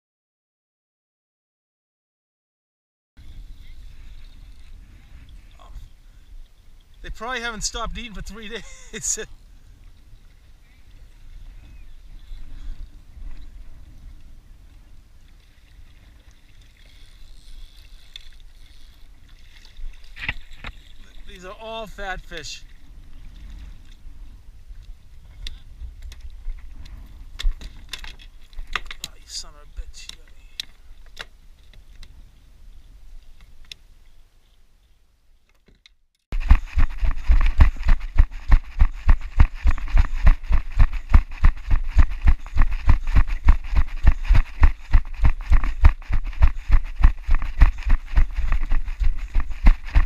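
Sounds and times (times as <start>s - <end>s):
wind rumble on microphone: 9.4s - 17.8s, 22.6s - 28.8s, 36.4s - 50.0s
fishing reel cranking: 16.8s - 19.0s
footsteps crunching on stony shore: 36.3s - 50.0s.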